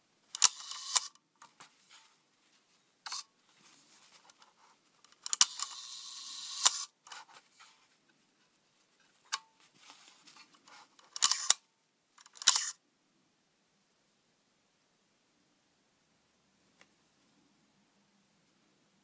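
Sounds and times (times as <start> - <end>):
camera shutter clicking: 0.3 - 1.2, 5.2 - 6.9, 11.1 - 11.6, 12.3 - 12.8.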